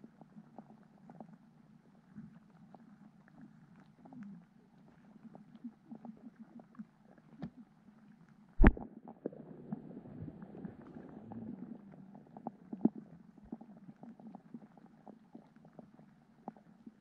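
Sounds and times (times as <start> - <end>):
small underwater clicks: 2.1 - 8.8
low muffled underwater hum: 8.6 - 16.0.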